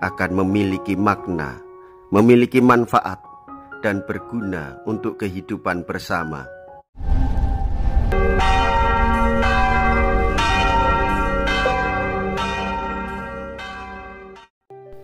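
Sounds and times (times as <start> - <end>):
church bells ringing: 8.1 - 14.5.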